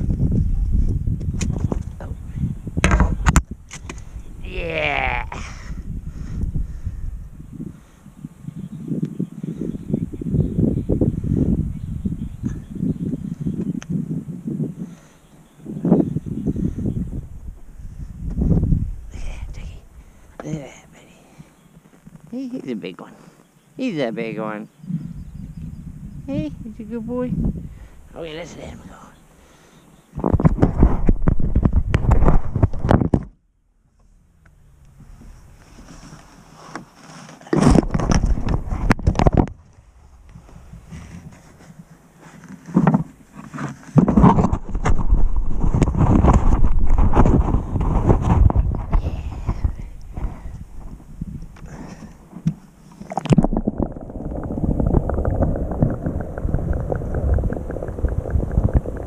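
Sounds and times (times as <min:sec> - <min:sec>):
small underwater clicks and knocks: 0:37.5 - 0:39.6, 0:52.3 - 0:59.0
underwater gurgling and bubbling: 0:53.0 - 0:59.0.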